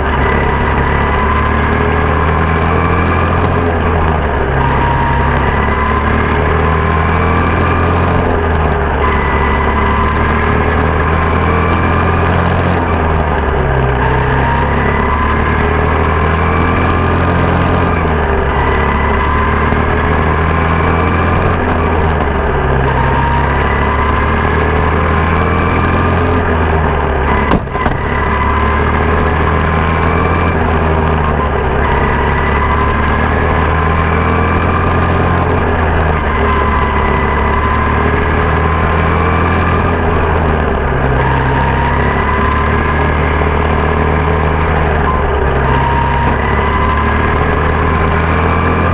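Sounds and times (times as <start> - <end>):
small race car engine: 0.0 - 48.9.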